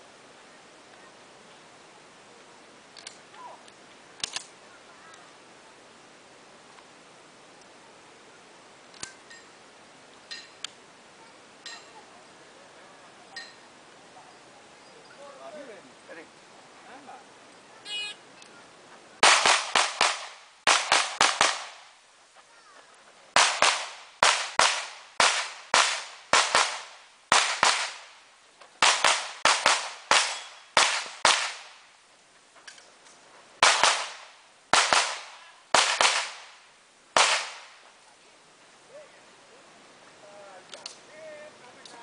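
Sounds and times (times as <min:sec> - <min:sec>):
pistol shots: 0:19.2 - 0:21.8, 0:23.4 - 0:28.1, 0:28.8 - 0:31.7, 0:33.6 - 0:36.5, 0:37.2 - 0:37.7.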